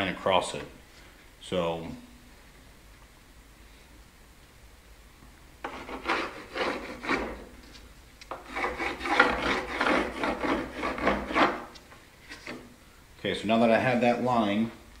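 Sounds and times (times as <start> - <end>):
pencil scratching on wood: 5.6 - 7.5, 8.3 - 11.8.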